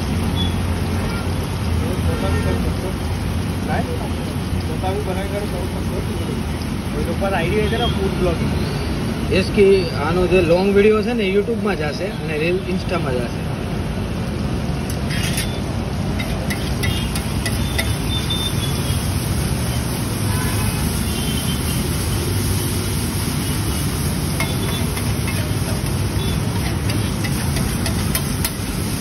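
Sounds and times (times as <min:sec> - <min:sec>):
metal spatula scraping griddle: 0:14.9 - 0:18.0, 0:24.4 - 0:28.8
metallic squeaks: 0:15.0 - 0:18.6.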